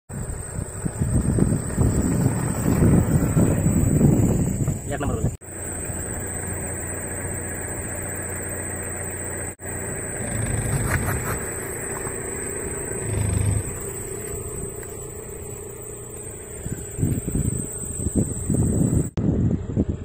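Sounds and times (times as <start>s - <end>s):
car engine running slowly: 0.1s - 20.0s.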